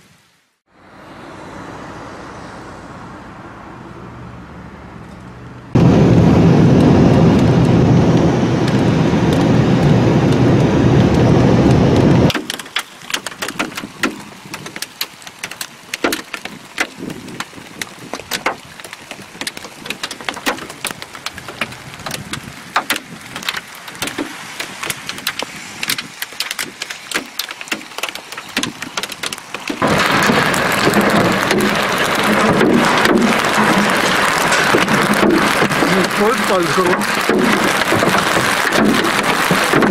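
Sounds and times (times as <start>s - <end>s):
light hiss of rain: 0.0s - 0.6s, 5.0s - 39.9s
loud even roar of storm: 5.7s - 12.3s, 28.7s - 39.9s
raindrops ticking on hard surface: 6.8s - 39.9s.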